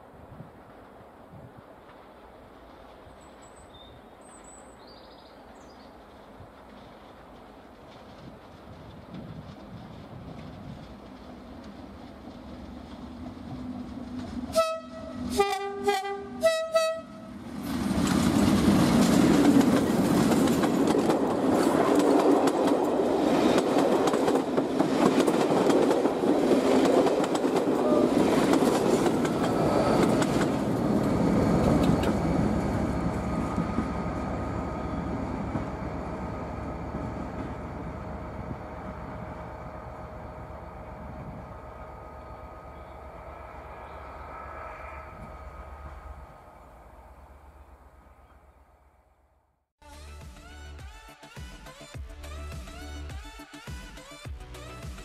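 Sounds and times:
locomotive engine passing: 0:05.8 - 0:49.4
two-tone locomotive horn: 0:14.5 - 0:17.4, 0:27.8 - 0:28.4
wheels clattering over rail joints: 0:17.6 - 0:32.6.

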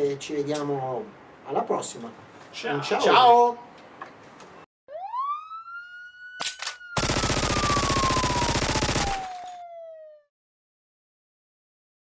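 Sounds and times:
siren wail: 0:04.9 - 0:10.3
gunshots: 0:06.4 - 0:09.6
automatic gunfire burst: 0:07.0 - 0:09.4.

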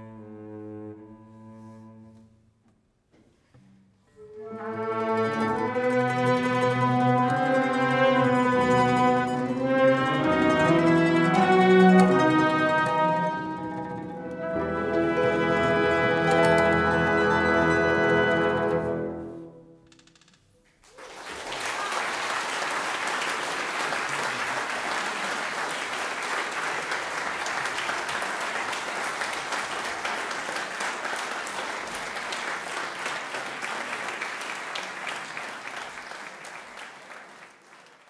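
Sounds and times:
audience applause: 0:20.8 - 0:38.0.

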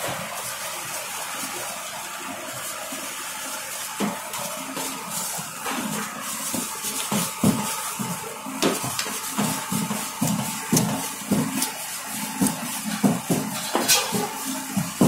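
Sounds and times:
dough slapping on steel counter: 0:05.7 - 0:15.0.

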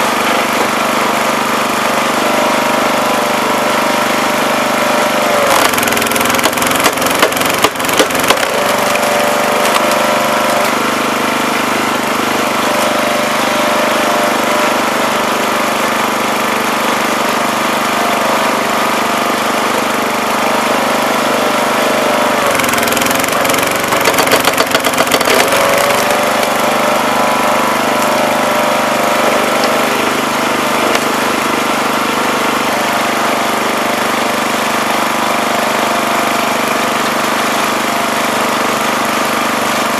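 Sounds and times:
small gasoline engine running: 0:00.0 - 0:39.9
wood splitting cracks: 0:05.4 - 0:10.8, 0:22.5 - 0:26.6.

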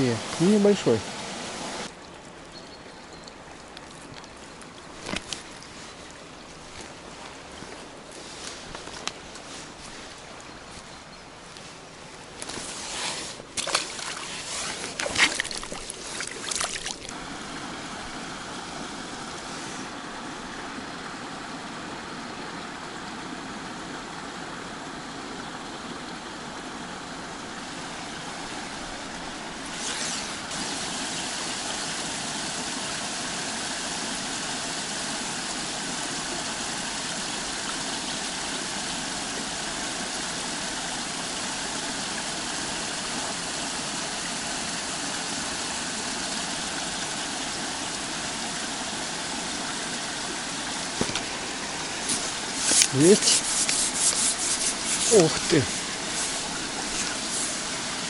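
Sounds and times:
stream flowing water: 0:00.0 - 0:58.0
brief rustle: 0:52.0 - 0:57.6.

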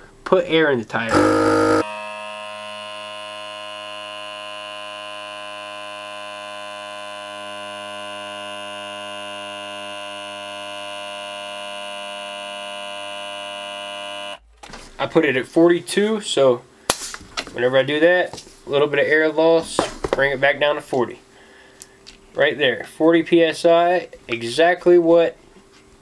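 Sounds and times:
electric tyre inflator buzzing hum: 0:01.1 - 0:14.5.

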